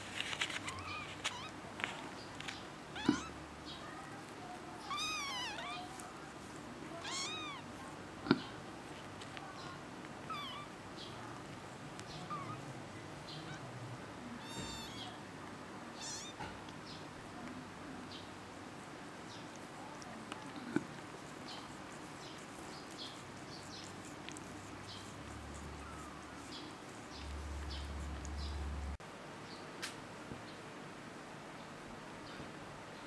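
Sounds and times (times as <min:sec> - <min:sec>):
kittens mewing: 0:00.5 - 0:01.6, 0:02.9 - 0:03.4, 0:04.8 - 0:08.6, 0:10.2 - 0:12.7, 0:13.3 - 0:13.8, 0:14.4 - 0:15.2, 0:15.9 - 0:16.6, 0:19.7 - 0:29.0.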